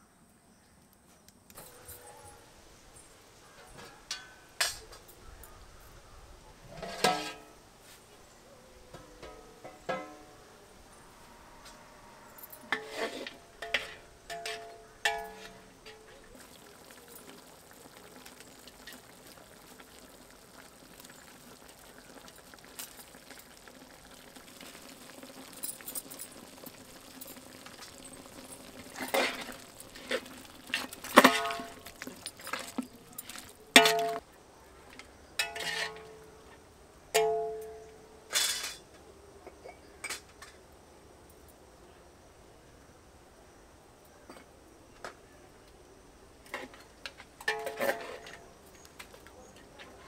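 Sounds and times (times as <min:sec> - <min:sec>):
metal utensils clinking on pot: 0:03.6 - 0:05.1, 0:06.7 - 0:07.5, 0:12.4 - 0:34.2, 0:35.4 - 0:36.3, 0:37.2 - 0:38.8, 0:46.5 - 0:48.5.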